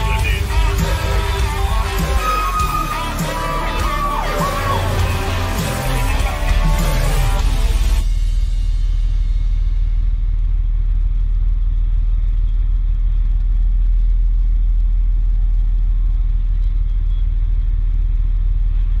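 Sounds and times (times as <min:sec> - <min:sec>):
diesel engine low rumble: 0:04.8 - 0:19.0.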